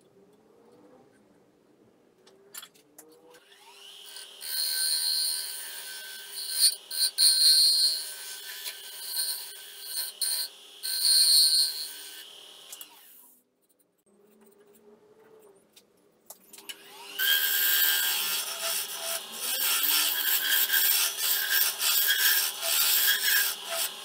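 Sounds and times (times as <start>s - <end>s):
wood lathe motor hum: 16.8s - 24.0s
turning tool scraping wood: 17.2s - 24.0s.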